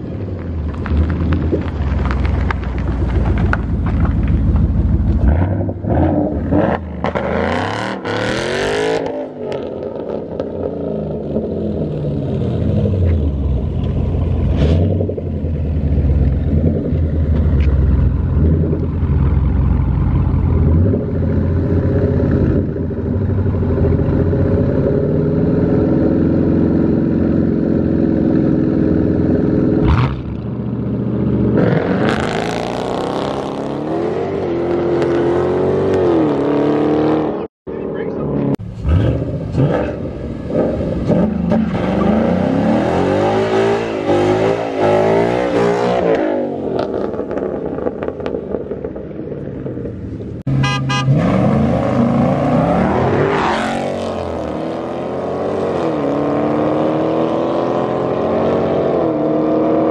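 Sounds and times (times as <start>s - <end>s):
car engines idling and revving: 0.0s - 59.9s.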